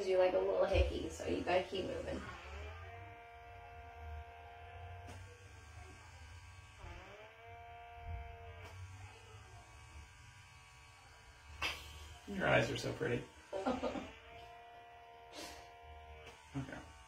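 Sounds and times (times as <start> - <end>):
small pore vacuum whining: 0.0 - 17.0.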